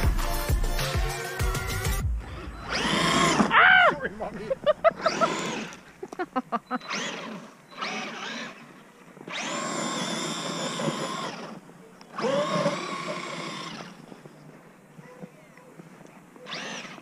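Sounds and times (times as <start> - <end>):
electric motor whining: 1.2 - 5.8, 6.7 - 14.5, 16.4 - 17.0.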